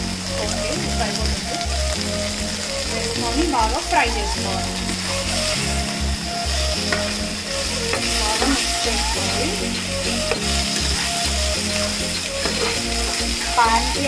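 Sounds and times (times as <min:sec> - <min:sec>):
chicken sizzling in oil: 0:00.0 - 0:14.0
metal spatula scraping pan: 0:09.7 - 0:13.7.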